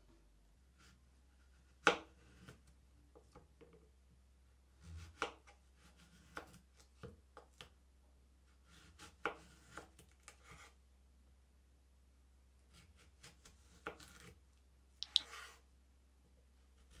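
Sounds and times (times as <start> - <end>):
knife slicing zucchini: 4.8 - 6.6, 12.7 - 14.3
knife tapping wooden board: 15.0 - 15.3.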